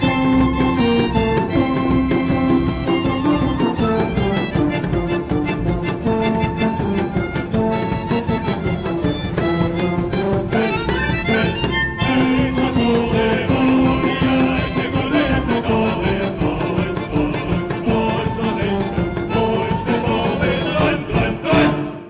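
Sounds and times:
folk band playing: 0.0 - 22.0
men singing held notes: 10.5 - 22.0.

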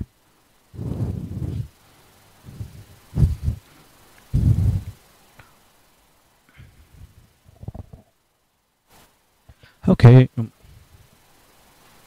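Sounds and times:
muffled low bursts: 0.7 - 1.8, 2.4 - 3.7, 4.3 - 5.0
microphone handling noise: 0.8 - 1.7, 2.5 - 3.6, 4.3 - 5.0
breath puffs on microphone: 0.8 - 1.8, 2.4 - 5.0.

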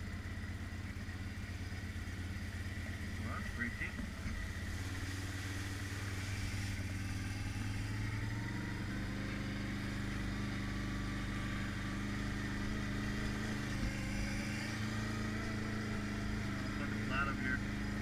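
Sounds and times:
quad bike engine running: 0.0 - 18.0.

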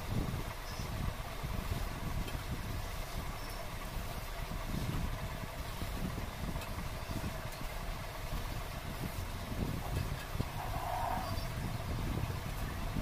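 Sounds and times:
low background rumble: 0.0 - 13.0.

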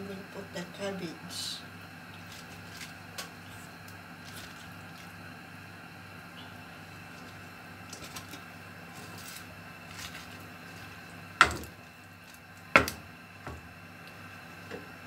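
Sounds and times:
wooden spoon knocking on metal pot: 11.4 - 11.8, 12.8 - 13.7.

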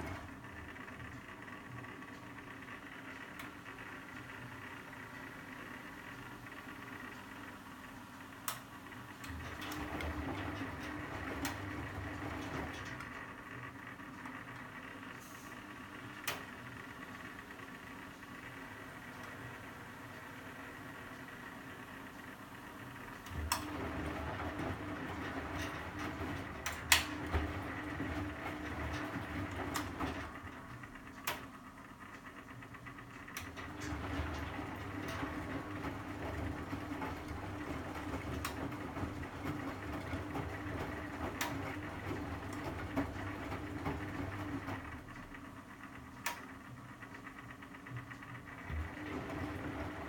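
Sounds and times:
washing machine drum turning: 9.2 - 13.3, 23.0 - 31.6, 33.0 - 45.4, 47.8 - 50.0.

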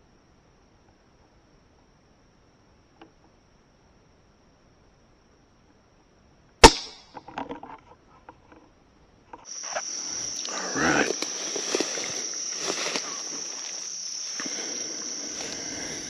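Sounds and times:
high insect drone: 0.0 - 16.0
rifle shot: 6.6 - 7.2
rustling through brush: 9.4 - 16.0.

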